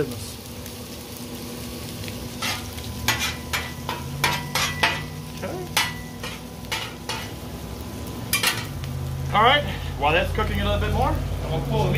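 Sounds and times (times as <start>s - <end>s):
bacon sizzling on a griddle: 0.0s - 11.9s
metal spatulas scraping griddle: 2.4s - 5.1s, 5.8s - 7.4s.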